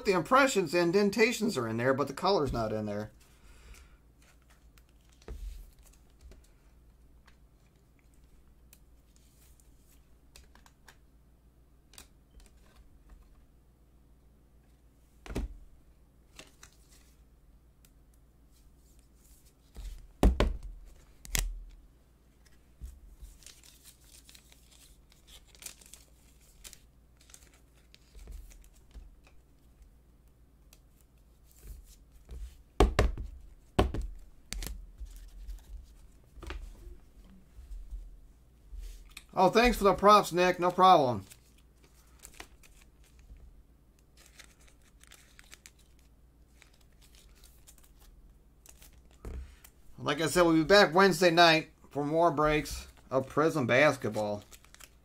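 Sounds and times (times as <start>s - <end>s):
plastic sleeve rustling: 20.8s - 29.7s, 38.8s - 50.4s, 52.6s - 55.0s.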